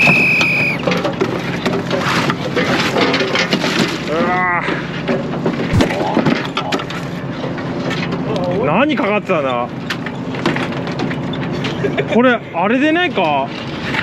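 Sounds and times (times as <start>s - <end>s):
brief squeal: 0.0s - 0.8s
crab pots knocking and clattering: 0.9s - 4.2s.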